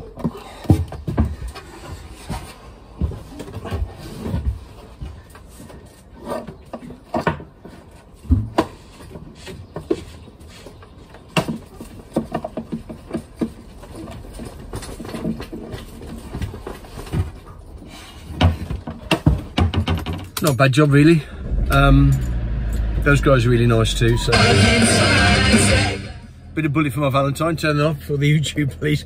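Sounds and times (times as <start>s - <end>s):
low thuds: 21.2s - 26.4s.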